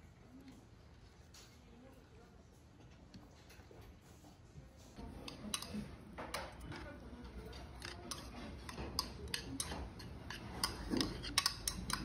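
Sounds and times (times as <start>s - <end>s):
metal chopsticks clicking in bowl: 5.2s - 6.4s, 7.3s - 12.0s.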